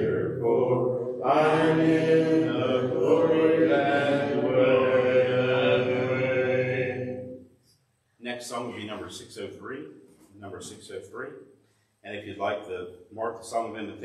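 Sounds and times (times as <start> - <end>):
congregation singing a hymn: 0.0 - 7.4.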